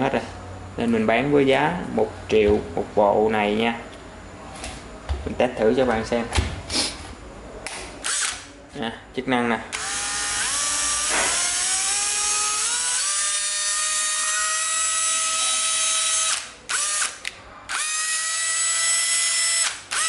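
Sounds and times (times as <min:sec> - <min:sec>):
cordless drill motor whine: 0:09.8 - 0:17.1, 0:17.7 - 0:20.0.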